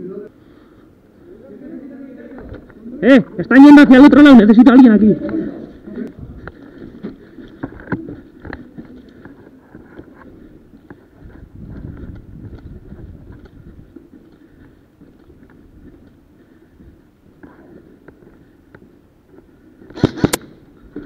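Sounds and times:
footsteps on concrete floor: 5.0 - 21.0.

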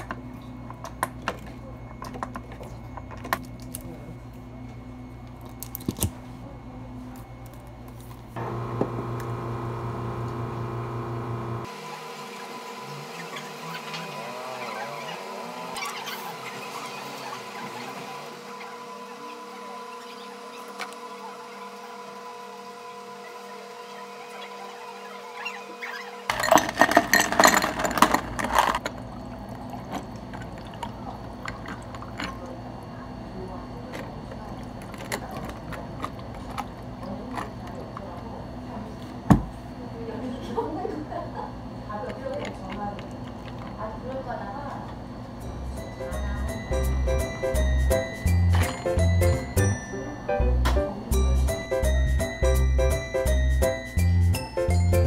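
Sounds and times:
low machine hum: 0.0 - 11.8, 26.3 - 55.0
blender motor whine: 8.4 - 26.6
ice cubes clattering into glass: 26.3 - 28.8.

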